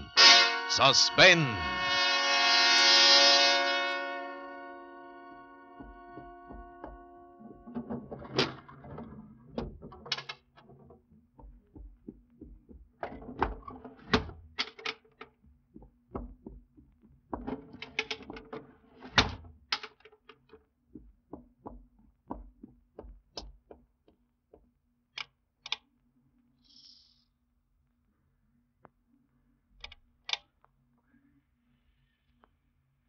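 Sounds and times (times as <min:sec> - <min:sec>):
footsteps on a hard floor: 0:05.8 - 0:07.0
knocks bumps and clicks: 0:07.7 - 0:19.4, 0:20.3 - 0:24.7.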